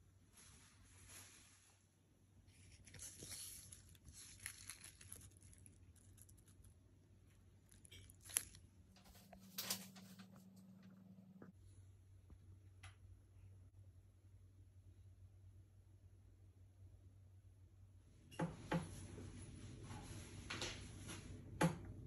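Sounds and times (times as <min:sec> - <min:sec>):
plastic mesh bag rustling: 0:02.5 - 0:06.7.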